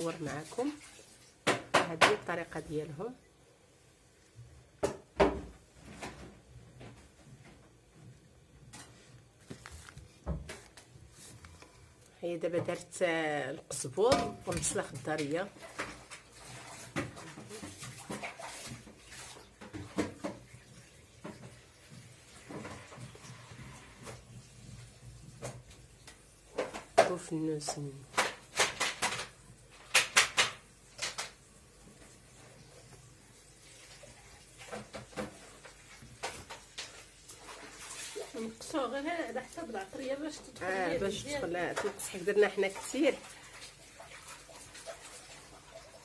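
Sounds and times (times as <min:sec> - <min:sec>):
herbs rustling in wooden bowl: 0:09.4 - 0:11.8.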